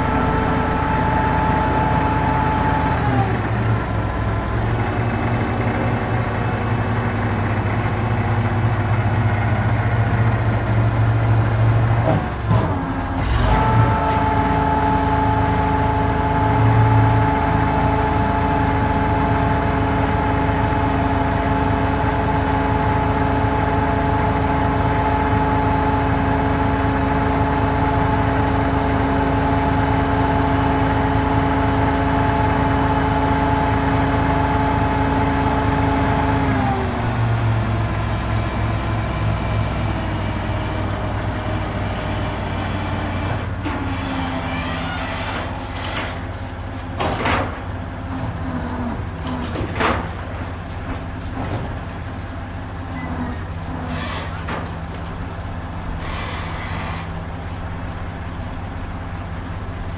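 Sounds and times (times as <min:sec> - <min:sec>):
crane engine running: 0:00.0 - 0:59.9
mechanical whine: 0:52.9 - 0:59.9.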